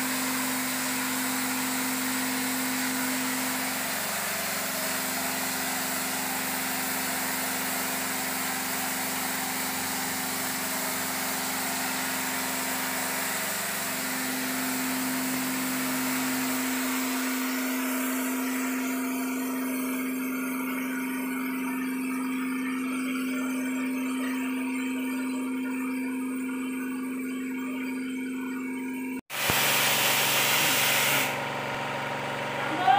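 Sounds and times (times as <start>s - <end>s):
paint spray gun hissing: 0.0s - 19.7s, 29.3s - 31.6s
air compressor humming: 0.0s - 32.9s.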